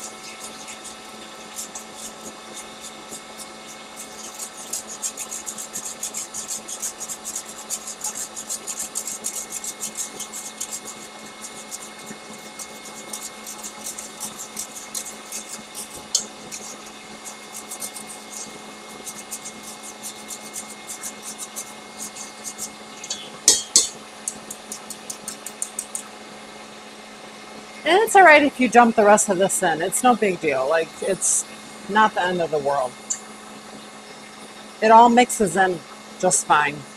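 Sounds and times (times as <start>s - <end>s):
scratchy ticking of metal sieve: 0.0s - 26.1s
faint steady hum: 0.0s - 36.9s.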